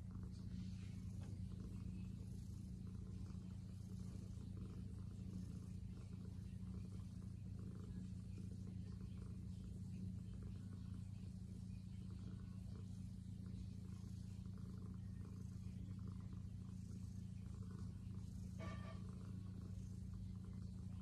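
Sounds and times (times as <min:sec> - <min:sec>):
cat purring: 0:00.0 - 0:21.0.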